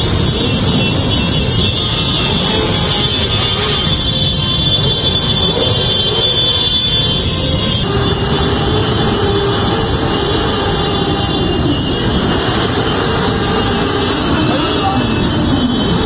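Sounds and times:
motorcycle engines droning: 0:00.0 - 0:16.0.

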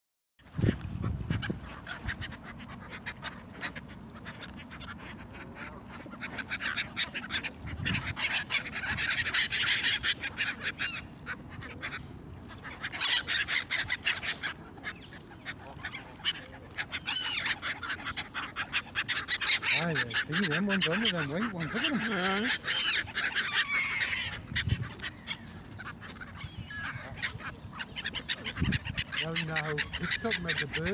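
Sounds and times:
geese honking: 0:01.0 - 0:30.9
gulls squealing: 0:12.6 - 0:30.9.

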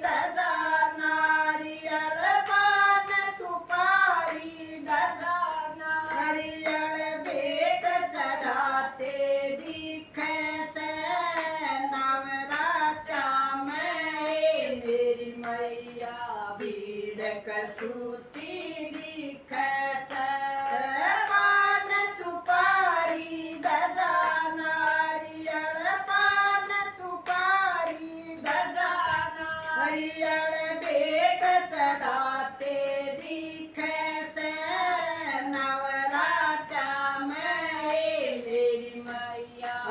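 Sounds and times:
hand claps: 0:00.0 - 0:39.9
women singing devotional song: 0:00.0 - 0:39.9.

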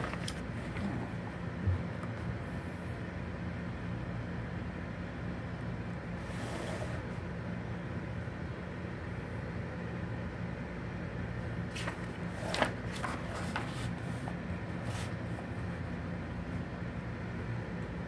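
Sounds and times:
magazine pages rustling: 0:00.0 - 0:00.8, 0:11.6 - 0:15.4.

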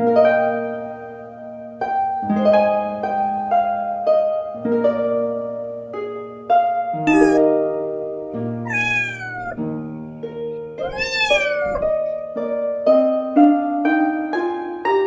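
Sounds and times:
plucked-string background music: 0:00.0 - 0:15.0
cat meowing: 0:07.1 - 0:07.5, 0:08.7 - 0:09.6, 0:10.8 - 0:12.0.

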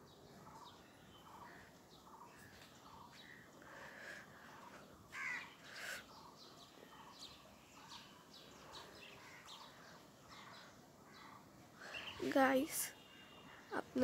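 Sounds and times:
small birds chirping: 0:00.0 - 0:14.0
crow cawing: 0:05.1 - 0:06.0.

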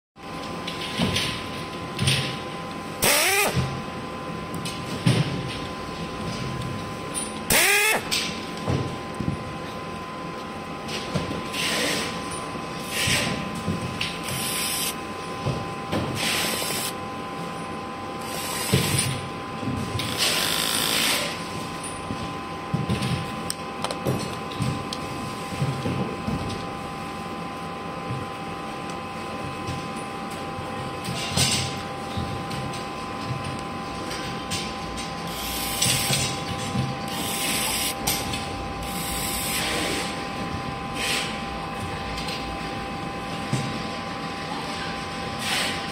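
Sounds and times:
cordless drill driving screws: 0:03.0 - 0:03.6, 0:07.5 - 0:08.0, 0:14.4 - 0:14.9, 0:16.5 - 0:16.9.

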